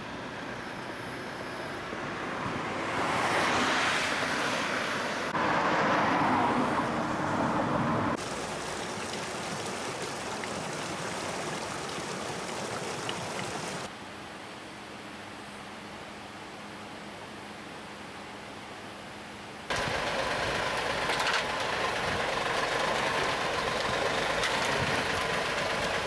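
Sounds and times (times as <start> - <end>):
traffic rush with engine hum: 0.0 - 13.9, 19.7 - 26.0
wind-like hiss: 0.0 - 26.0
car swishing past: 2.3 - 8.2.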